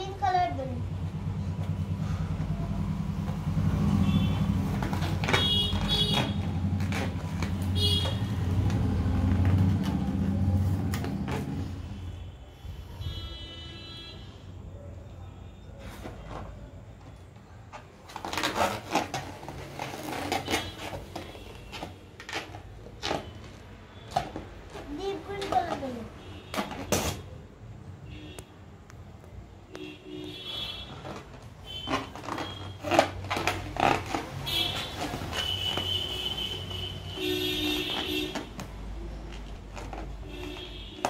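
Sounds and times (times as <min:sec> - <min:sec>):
rubber balloon squeaks: 0:03.9 - 0:10.0, 0:17.7 - 0:25.9, 0:26.5 - 0:27.4, 0:30.6 - 0:41.0.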